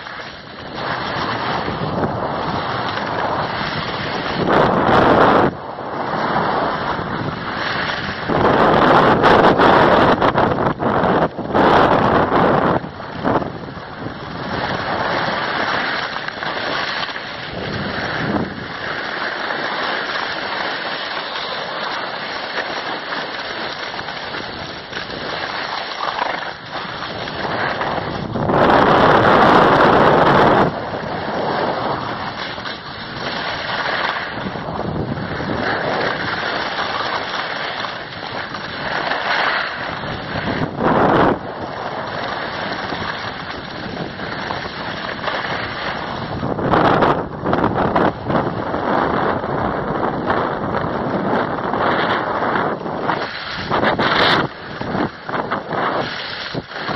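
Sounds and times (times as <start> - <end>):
skis sliding on packed snow: 0.0 - 56.9
wind rushing over microphone: 0.0 - 56.9.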